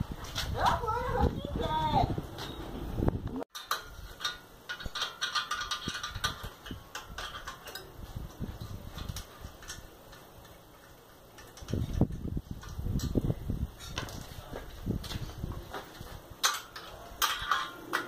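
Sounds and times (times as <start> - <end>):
wrench clicking on metal bolts: 3.6 - 8.0, 16.4 - 18.0.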